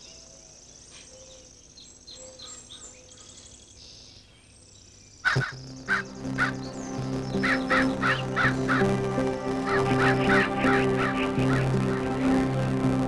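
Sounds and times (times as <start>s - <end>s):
faint bird chirps: 0.0s - 8.9s
loud harsh calls: 5.3s - 13.0s
music with low held notes: 5.4s - 13.0s.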